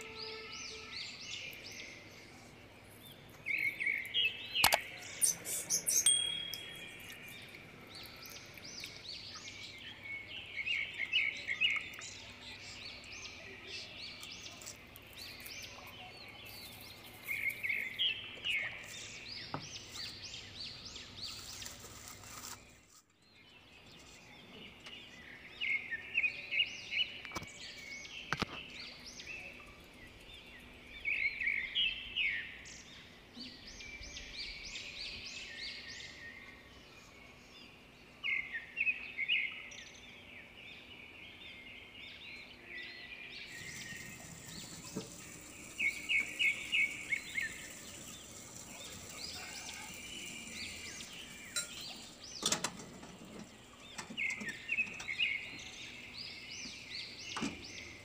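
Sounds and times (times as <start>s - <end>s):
small birds chirping: 0.0s - 58.0s
sharp clicks: 4.6s - 7.2s.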